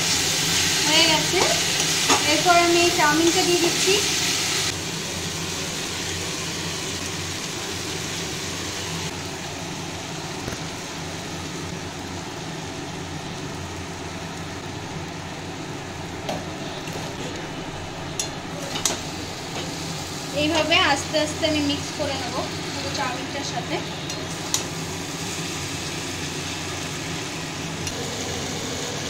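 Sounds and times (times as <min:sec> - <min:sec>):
food sizzling: 0:00.0 - 0:29.0
gas burner humming and hissing: 0:00.0 - 0:29.0.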